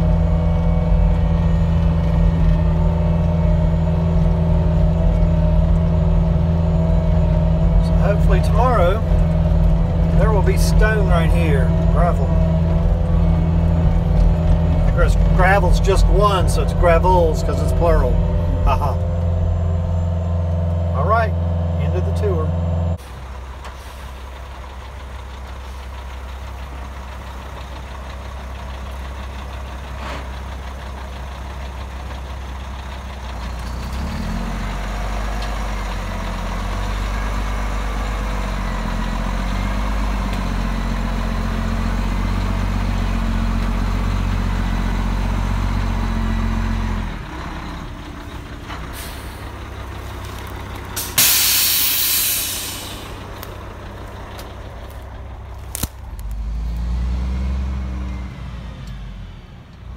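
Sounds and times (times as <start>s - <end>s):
diesel truck engine running: 0.0s - 59.9s
air brakes hissing: 48.9s - 49.6s, 51.0s - 53.2s.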